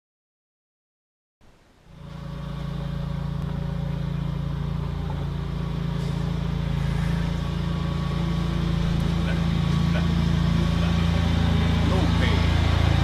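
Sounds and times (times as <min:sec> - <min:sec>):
vehicle engine running: 0:01.8 - 0:13.0.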